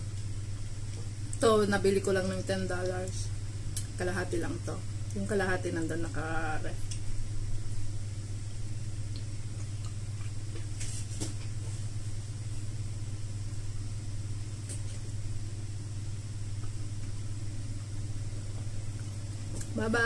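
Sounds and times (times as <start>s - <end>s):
steady low hum: 0.0s - 20.0s
chewing soft fruit: 6.8s - 12.8s, 13.4s - 19.8s.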